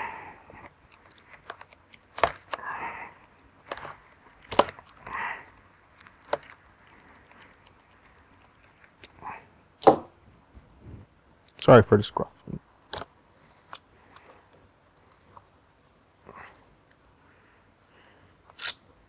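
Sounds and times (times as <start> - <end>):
rubber tearing and scraping: 0.9 - 2.6, 3.6 - 5.2, 5.9 - 9.2
sharp clicks and snaps: 5.9 - 9.2.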